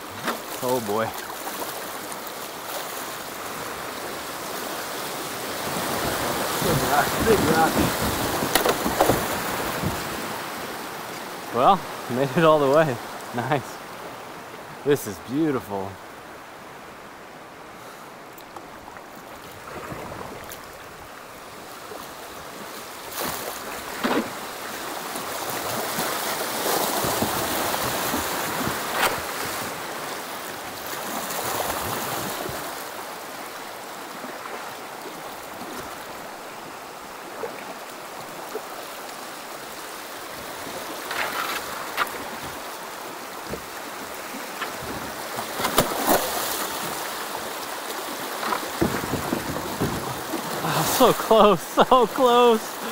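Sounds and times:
river rapids rushing and splashing: 0:00.0 - 0:52.9
sharp knocks on kayak: 0:06.7 - 0:10.1, 0:23.9 - 0:24.4, 0:48.4 - 0:50.5.

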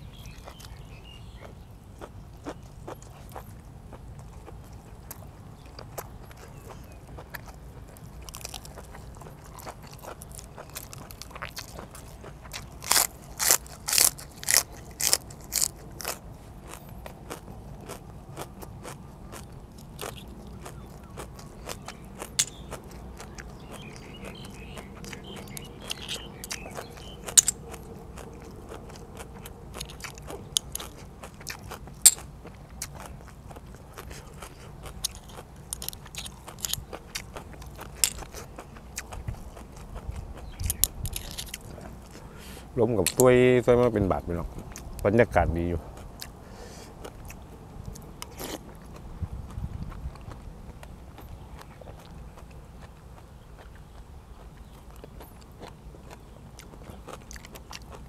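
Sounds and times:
chewing: 0:00.0 - 0:58.0
crunching bites into raw vegetables: 0:00.1 - 0:43.4, 0:47.0 - 0:58.0
shells clicking and snapping open: 0:22.4 - 0:22.6, 0:27.3 - 0:27.6, 0:40.7 - 0:41.6.

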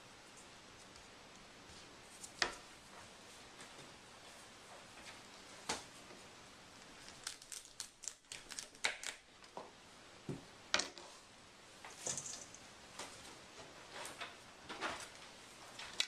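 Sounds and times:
broccoli crackling snaps: 0:06.8 - 0:09.2.

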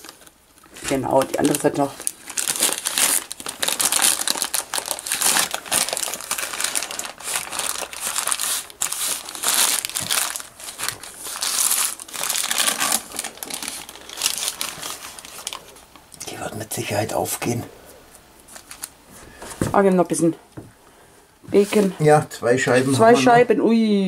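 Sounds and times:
baking paper crinkling: 0:00.0 - 0:16.0, 0:18.4 - 0:19.8.

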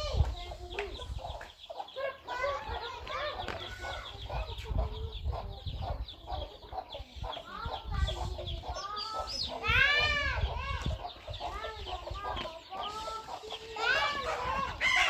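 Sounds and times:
chicks peeping: 0:00.0 - 0:15.0
hen clucking: 0:00.0 - 0:15.0.

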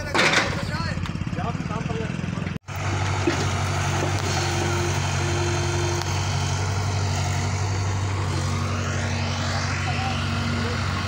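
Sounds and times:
heavy diesel engine running: 0:00.0 - 0:11.0
short high whine: 0:04.2 - 0:11.0.

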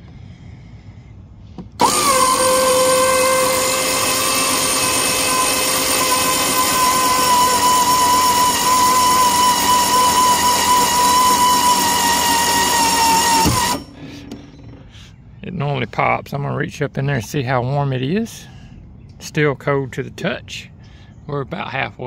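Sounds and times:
electric winch motor whining: 0:01.8 - 0:14.8.

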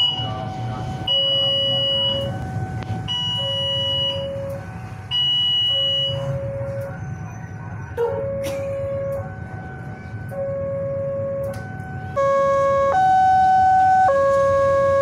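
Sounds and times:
level crossing alarm two tones: 0:00.0 - 0:06.8, 0:12.2 - 0:15.0
low traffic rumble: 0:00.0 - 0:15.0.

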